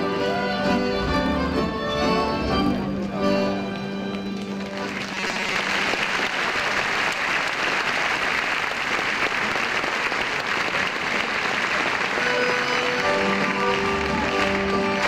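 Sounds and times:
band playing: 0.0s - 5.0s, 11.7s - 15.0s
audience applauding: 4.0s - 15.0s.

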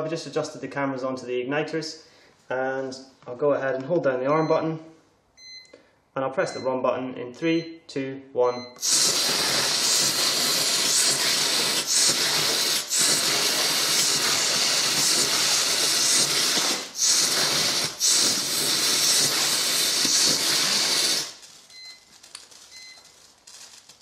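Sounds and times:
fuse burning with hissing sparks: 8.8s - 24.0s.

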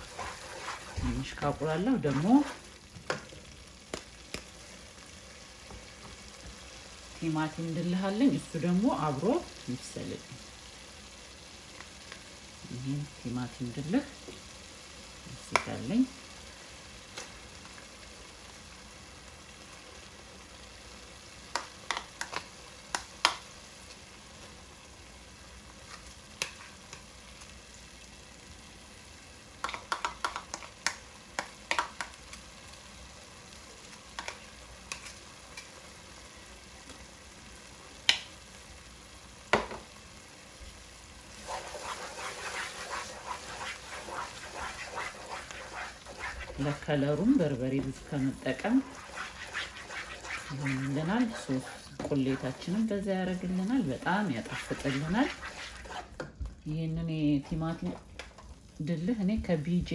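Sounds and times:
wooden spoon scraping: 0.0s - 2.7s, 41.3s - 56.3s
onions sizzling in a pot: 0.0s - 59.9s
sharp clicks and taps: 29.6s - 32.2s.

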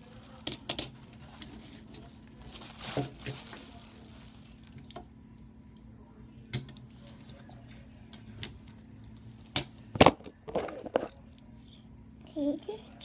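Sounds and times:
plastic bag rustling: 0.0s - 4.9s.

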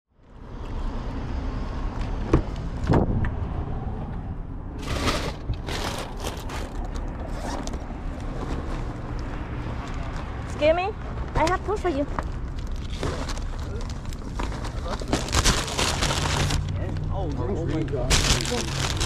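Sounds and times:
traffic rumble: 0.1s - 19.0s
wind: 0.1s - 19.0s
plastic bags rustling: 4.8s - 7.6s, 12.4s - 16.7s, 18.0s - 19.0s.

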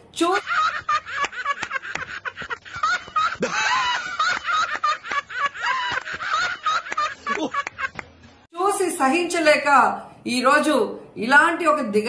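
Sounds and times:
men laughing: 0.4s - 8.2s.

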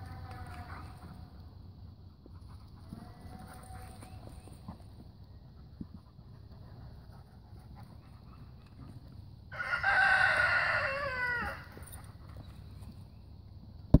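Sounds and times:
rooster crowing: 9.5s - 11.8s.

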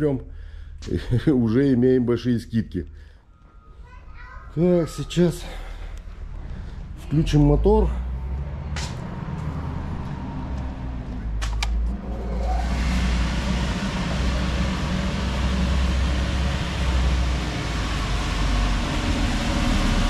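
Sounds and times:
electric air blower rushing: 8.3s - 20.0s
sharp clicks: 11.4s - 11.9s.

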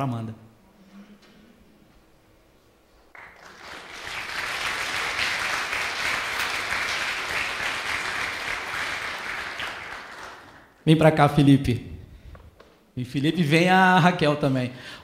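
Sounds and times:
congregation applauding: 3.1s - 10.8s.

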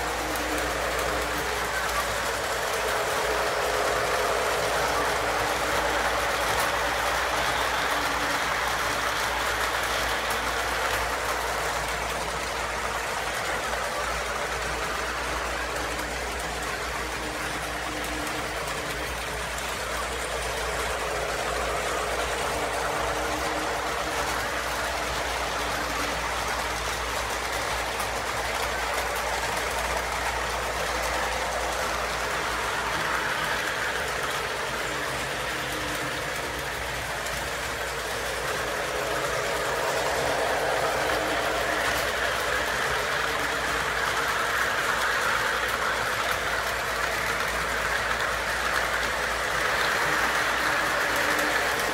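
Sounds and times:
model train rolling on track: 0.0s - 51.9s.

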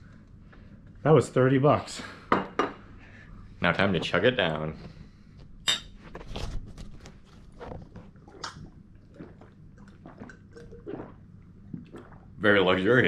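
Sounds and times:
person gulping water: 7.6s - 12.4s.

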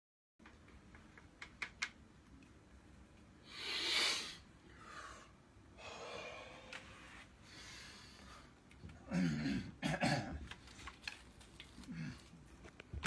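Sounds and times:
soft breath: 3.4s - 8.6s.

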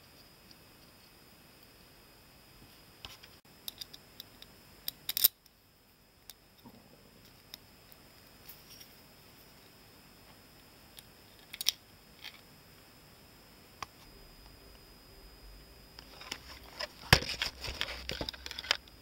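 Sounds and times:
small metal parts clicking: 3.6s - 5.4s.

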